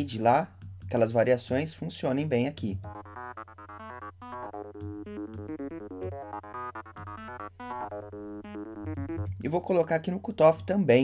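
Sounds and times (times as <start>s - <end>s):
fast synth arpeggio: 2.7s - 9.8s.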